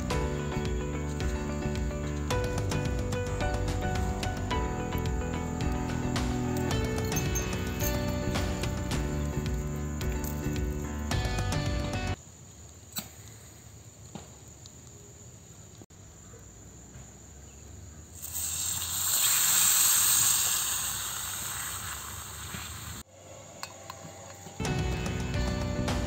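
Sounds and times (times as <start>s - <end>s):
faint steady hiss: 12.1s - 24.5s
milk sizzling in hot pan: 18.2s - 23.0s.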